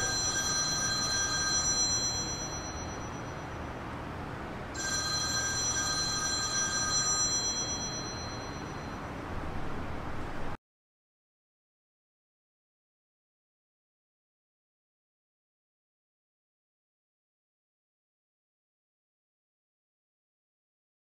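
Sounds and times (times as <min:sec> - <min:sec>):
electronic ring chord: 0:00.0 - 0:03.8, 0:04.7 - 0:09.3.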